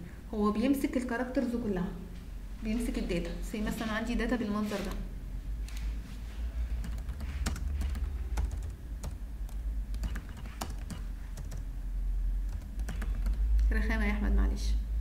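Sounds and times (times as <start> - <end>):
low steady hum: 0.0 - 15.0
computer keyboard key clicks: 6.8 - 11.6, 12.5 - 13.4.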